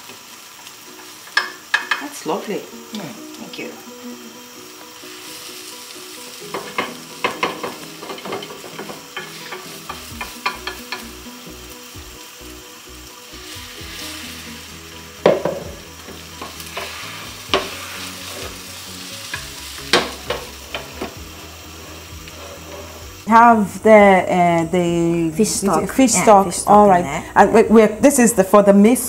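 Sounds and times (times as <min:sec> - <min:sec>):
egg sizzling in pan: 0:00.0 - 0:29.0
chopsticks clicking on pan: 0:06.5 - 0:11.1.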